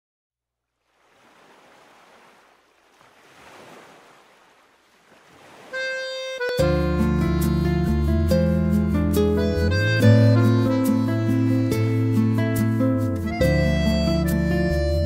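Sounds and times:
music with long held tones: 0:06.0 - 0:15.0.

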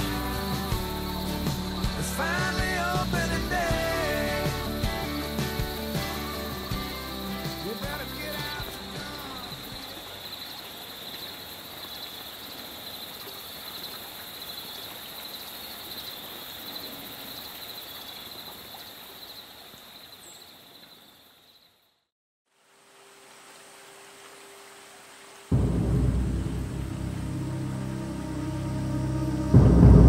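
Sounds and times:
country song: 0:00.0 - 0:10.0
high-pitched insect chorus: 0:00.0 - 0:21.9
soft hiss: 0:22.5 - 0:25.6.

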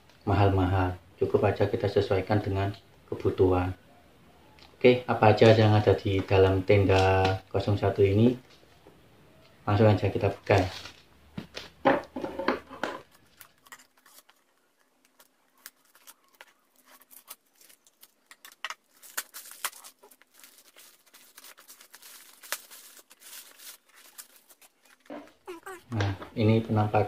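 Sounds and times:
plastic crinkling and rustling: 0:10.1 - 0:26.2.

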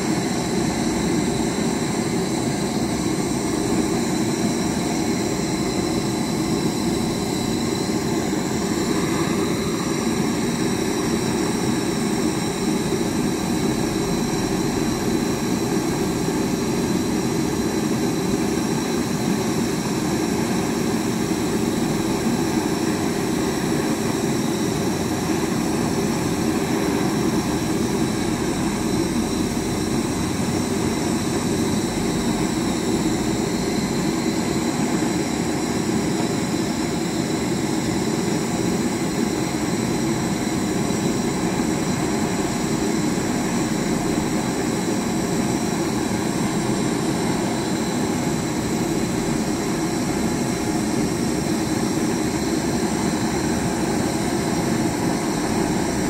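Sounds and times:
machine drone: 0:00.0 - 0:36.0
faint high whines: 0:00.0 - 0:56.0.

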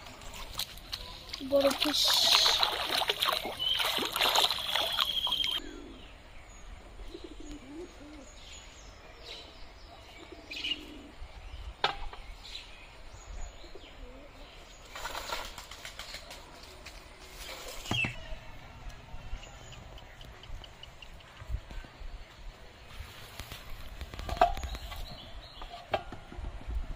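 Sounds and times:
soft low bird calls: 0:00.1 - 0:14.9
fish splashing in water: 0:00.4 - 0:05.6
short bird chirps: 0:03.6 - 0:05.6.

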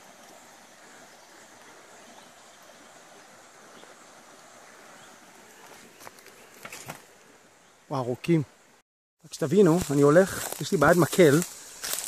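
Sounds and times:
even hiss: 0:00.0 - 0:12.0
high insect drone: 0:09.3 - 0:12.0.

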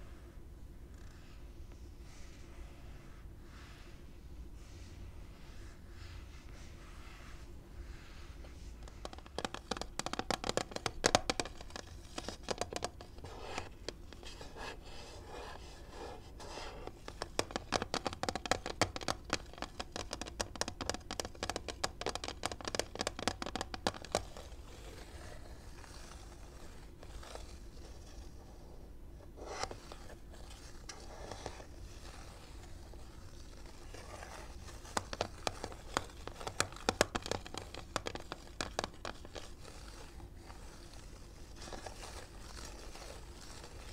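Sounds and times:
fingernails tapping on plastic: 0:09.0 - 0:13.0.

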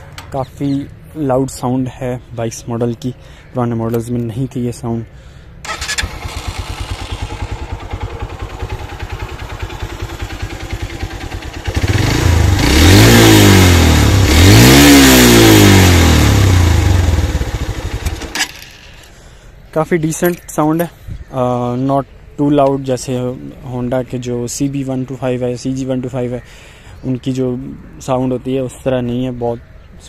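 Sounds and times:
motorcycle engine idling and revving: 0:05.6 - 0:19.1.

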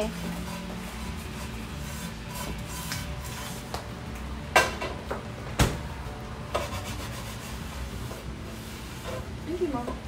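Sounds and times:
rubbing of seasoning: 0:00.1 - 0:03.7, 0:06.6 - 0:09.3.

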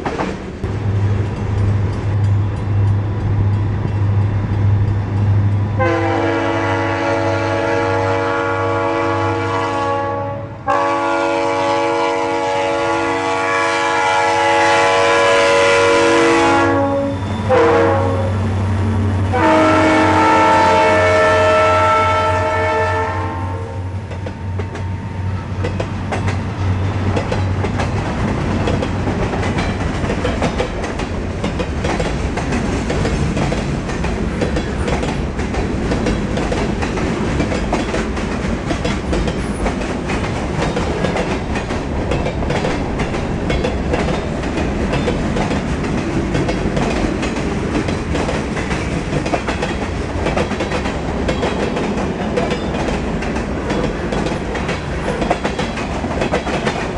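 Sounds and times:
freight train rumbling past: 0:00.0 - 0:56.9
locomotive horn: 0:05.8 - 0:18.6, 0:19.2 - 0:24.0
wheels clicking over rail joints: 0:27.1 - 0:56.9.

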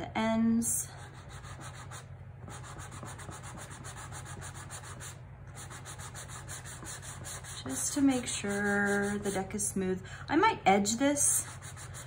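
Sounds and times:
sanding pad rubbing card edges: 0:01.2 - 0:07.8.

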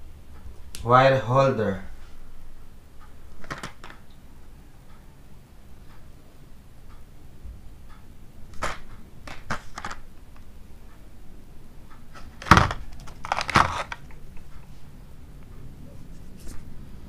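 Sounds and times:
plastic packets crinkling: 0:12.4 - 0:14.2.

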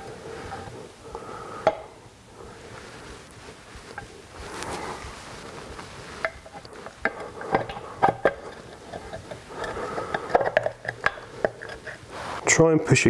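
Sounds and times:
metal clicks and rubbing: 0:06.2 - 0:12.1.

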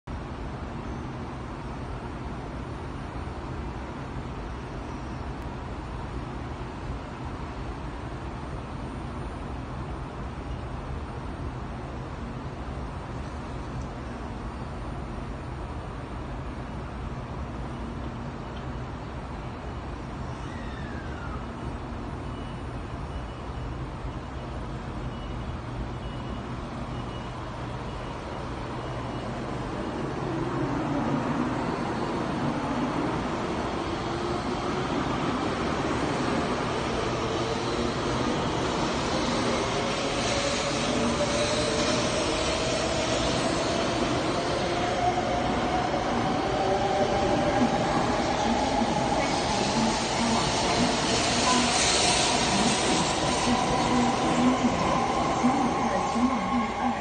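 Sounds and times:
train low hum: 0:00.0 - 0:57.0
faint high beep: 0:22.2 - 0:30.3, 0:47.0 - 0:57.0.

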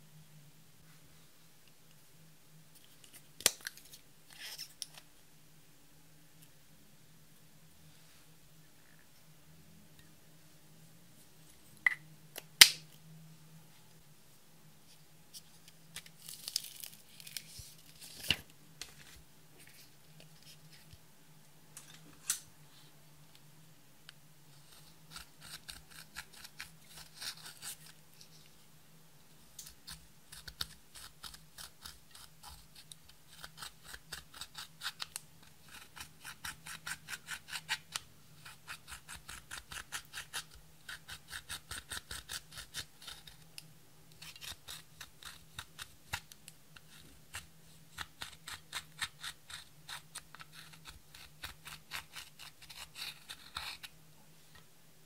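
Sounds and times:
metal tool scratching eyeshadow: 0:24.7 - 0:27.9, 0:29.9 - 0:43.4, 0:44.2 - 0:46.3, 0:46.9 - 0:53.9.

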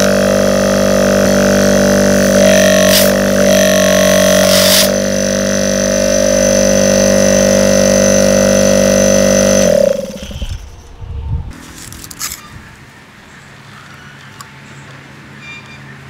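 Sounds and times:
refrigerator compressor humming: 0:00.0 - 0:10.6
burst of noise: 0:00.0 - 0:11.0
low rumble running down: 0:00.0 - 0:11.6.

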